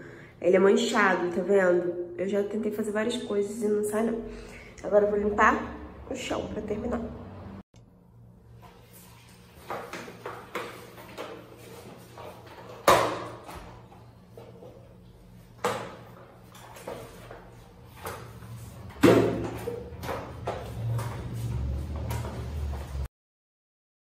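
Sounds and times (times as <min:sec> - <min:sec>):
mop scraping across floor tiles: 0:08.4 - 0:23.1.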